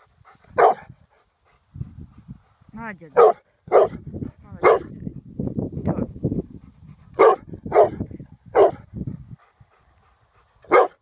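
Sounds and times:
dog barking deeply: 0:00.6 - 0:00.9, 0:03.2 - 0:05.0, 0:07.1 - 0:08.9, 0:10.6 - 0:11.0.

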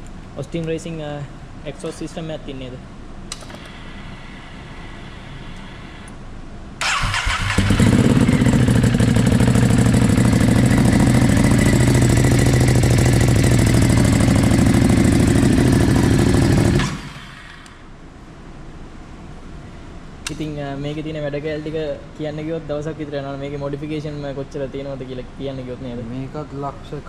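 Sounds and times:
electric starter cranking: 0:06.8 - 0:10.8, 0:11.8 - 0:17.8
motorcycle engine idling: 0:06.8 - 0:17.4.

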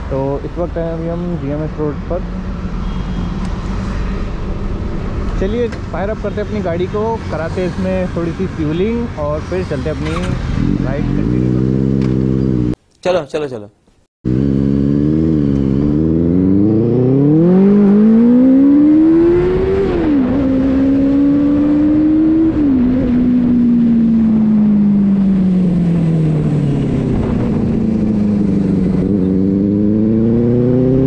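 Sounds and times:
motorcycle engine accelerating: 0:09.5 - 0:12.8, 0:14.3 - 0:31.0.

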